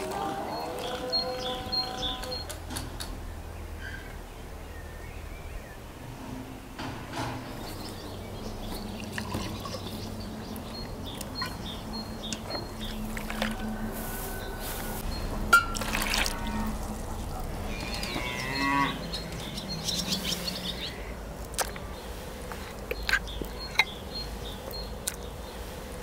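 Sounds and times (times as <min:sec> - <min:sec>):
cow mooing: 0:00.0 - 0:02.4, 0:16.1 - 0:19.3.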